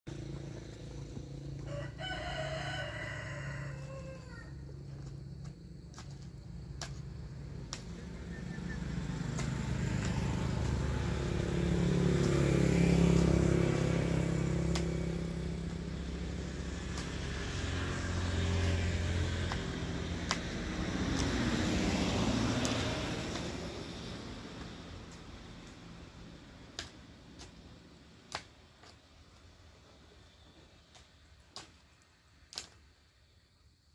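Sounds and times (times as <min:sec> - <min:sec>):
road vehicles passing: 0:00.1 - 0:33.2
light sharp ticks: 0:05.0 - 0:11.5, 0:12.2 - 0:12.4, 0:14.6 - 0:16.1, 0:19.4 - 0:21.5, 0:22.4 - 0:23.7, 0:26.7 - 0:27.7, 0:28.3 - 0:29.0, 0:30.9 - 0:31.9, 0:32.5 - 0:32.8.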